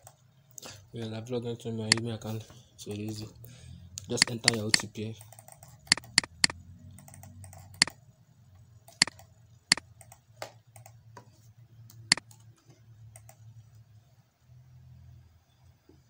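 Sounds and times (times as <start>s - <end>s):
computer mouse clicks: 4.0s - 8.0s, 8.8s - 11.0s, 11.8s - 13.8s.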